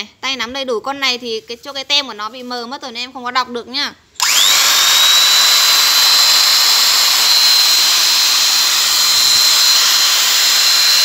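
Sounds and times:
electric drill whining: 0:04.2 - 0:11.0.

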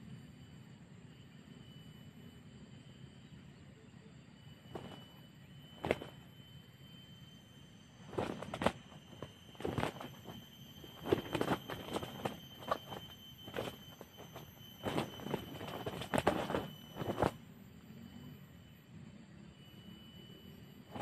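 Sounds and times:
crackling rustles in undergrowth: 0:08.0 - 0:17.4.

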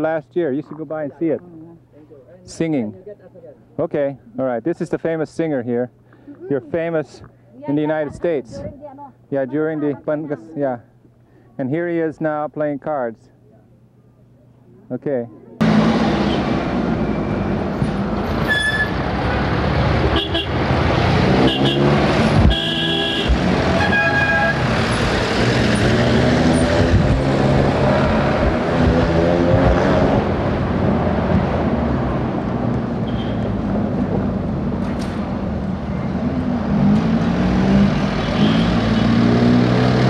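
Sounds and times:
traffic engines revving: 0:15.6 - 0:40.0
vehicle horns tooting: 0:20.1 - 0:20.6, 0:21.3 - 0:24.7, 0:33.0 - 0:33.6, 0:38.1 - 0:39.3.

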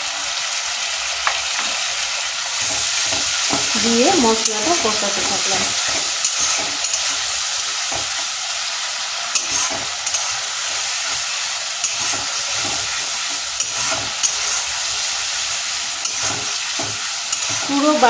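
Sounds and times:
paste sizzling in oil: 0:00.0 - 0:18.0
spatula scraping a metal pan: 0:04.4 - 0:08.2, 0:09.3 - 0:18.0.

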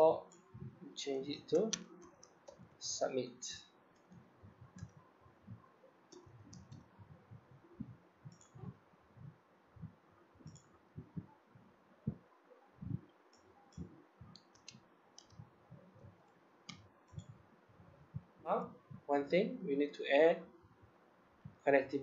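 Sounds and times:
computer mouse clicks: 0:01.5 - 0:02.8, 0:06.1 - 0:06.9, 0:07.8 - 0:08.7, 0:10.4 - 0:11.2, 0:13.3 - 0:15.9.

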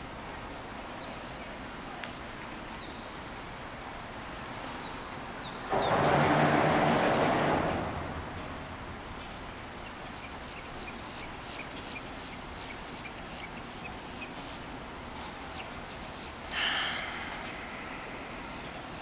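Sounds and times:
steady background hum: 0:05.4 - 0:19.0.

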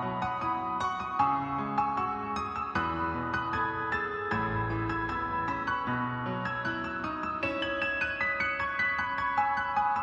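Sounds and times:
gentle instrumental music: 0:00.0 - 0:10.0.

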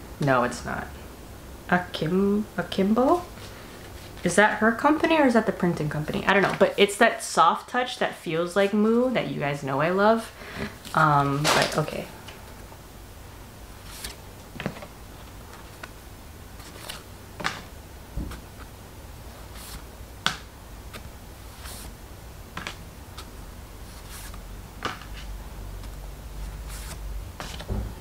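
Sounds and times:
postcards flipped and tapped: 0:19.6 - 0:21.9, 0:22.5 - 0:23.3, 0:24.1 - 0:26.0, 0:26.7 - 0:27.8.

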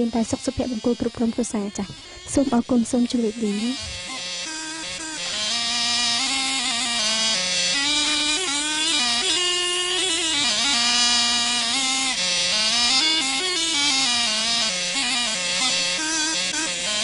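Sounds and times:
dance music with buzzy reedy melody: 0:00.0 - 0:09.3.

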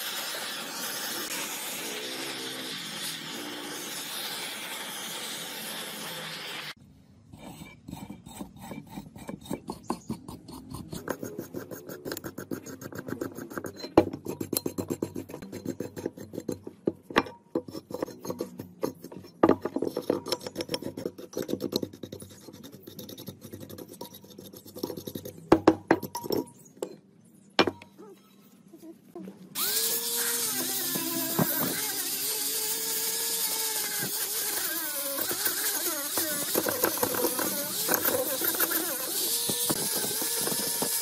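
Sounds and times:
hand tool scraping rusty metal: 0:07.3 - 0:27.0, 0:30.2 - 0:41.0.

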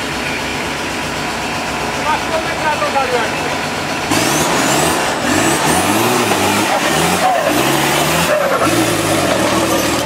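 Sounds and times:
off-road vehicle engine revving: 0:00.0 - 0:10.0.

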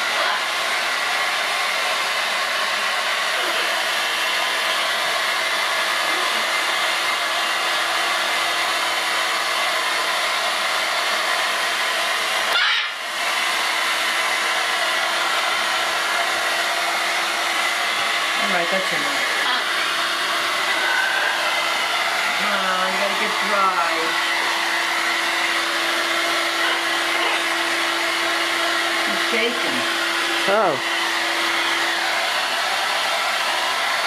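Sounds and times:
hair dryer running: 0:00.0 - 0:34.0.

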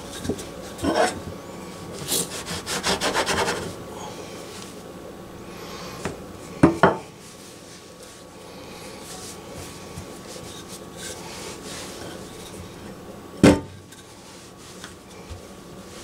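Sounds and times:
rolling pin rolling over dough: 0:06.6 - 0:16.0
hands rubbing pastry dough: 0:07.1 - 0:13.0, 0:13.9 - 0:16.0.

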